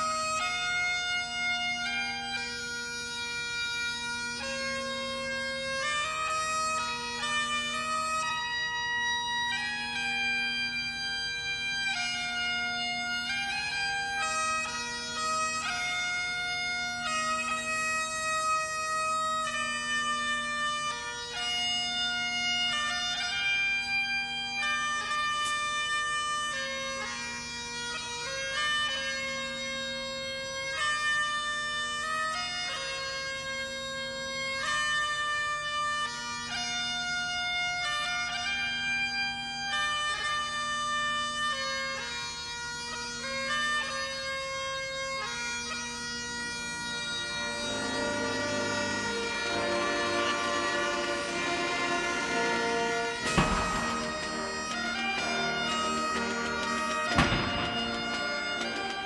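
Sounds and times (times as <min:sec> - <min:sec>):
bagpipes playing melody: 0:00.0 - 0:59.0.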